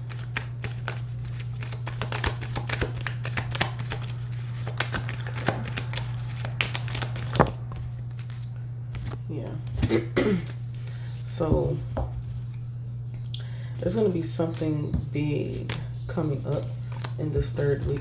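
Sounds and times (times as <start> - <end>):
cards being shuffled: 0.0 - 10.6, 15.5 - 18.0
steady low hum: 0.0 - 18.0.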